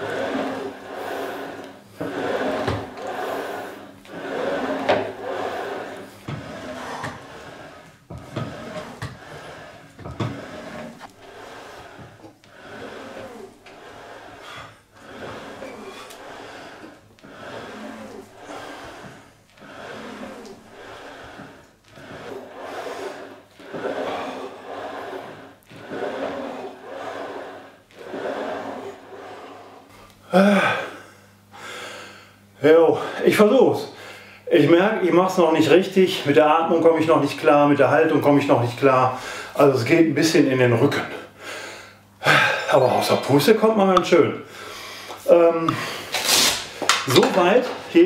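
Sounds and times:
seat rolling along rail: 0.0 - 29.9
person breathing hard: 0.0 - 32.4, 34.0 - 34.5, 39.2 - 39.6, 41.2 - 42.7, 44.5 - 47.0
rowing machine flywheel whirring: 0.0 - 48.0.

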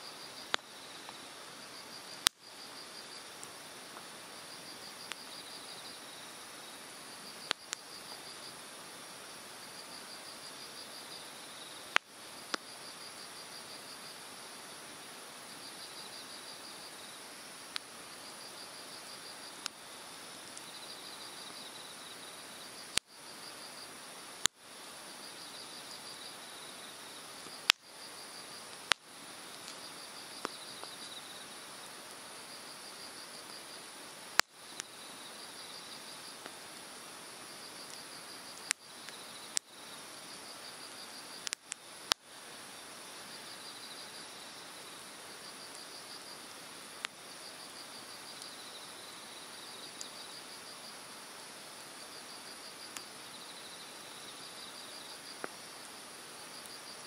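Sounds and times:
bonfire crackling: 0.0 - 53.3, 54.7 - 57.0
insect chirping trills: 0.0 - 57.0
burning wood popping: 41.4 - 42.2.

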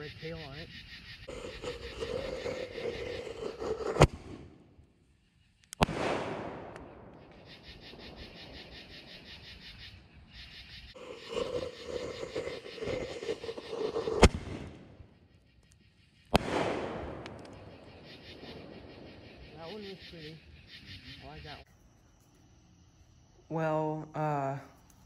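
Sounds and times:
fuse burning: 1.3 - 10.0, 10.9 - 19.6
firework launch crack: 3.5 - 4.7, 5.7 - 9.1, 13.0 - 15.1, 16.3 - 19.1.

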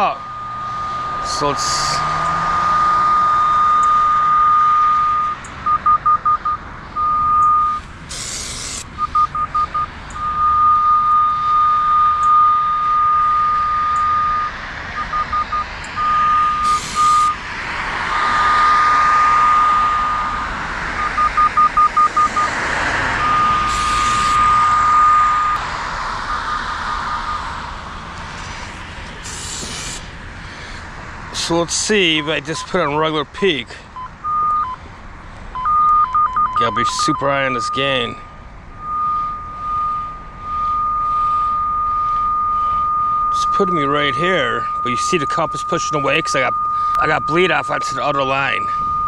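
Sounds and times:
steady high beep: 0.0 - 7.8, 9.0 - 17.4, 18.0 - 22.6, 23.2 - 27.8, 32.0 - 32.9, 34.0 - 34.8, 35.6 - 38.2, 38.8 - 49.0
rapid short beeps: 3.0 - 17.4, 21.0 - 22.6, 23.2 - 25.6, 35.6 - 37.9, 38.8 - 49.0.

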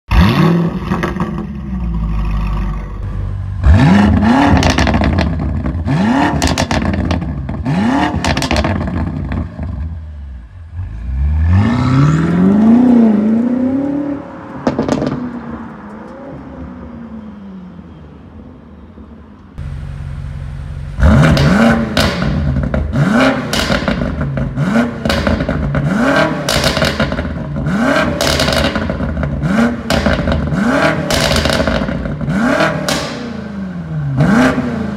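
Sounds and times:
car engine revving: 0.1 - 10.0, 19.6 - 34.9
car engine idling: 19.6 - 25.9
exhaust crackling: 19.6 - 33.5.

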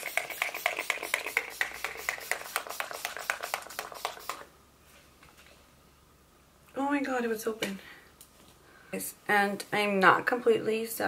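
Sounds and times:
spray bottle mist sprays: 0.0 - 4.5.

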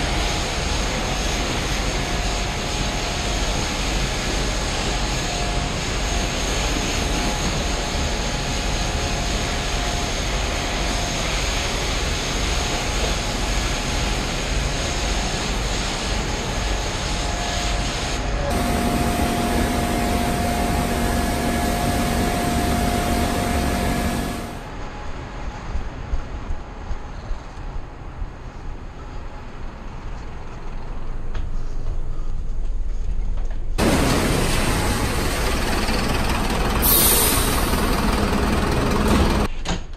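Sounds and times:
pressure washer water jet hiss: 17.8 - 24.6, 33.8 - 38.5
motor and pump hum: 18.5 - 24.6, 33.8 - 39.5.

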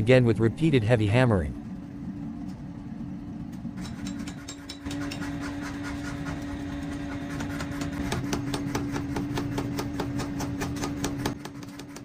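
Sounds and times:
steady hum: 0.0 - 12.0
power hammer hammering hot steel: 3.8 - 12.0.

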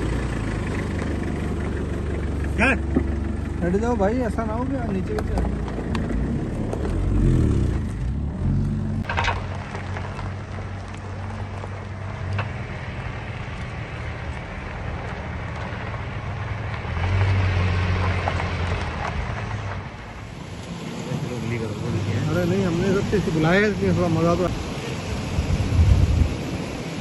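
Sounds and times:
suv engine running: 0.0 - 27.0
tyre and body noise on dirt: 4.7 - 21.4.

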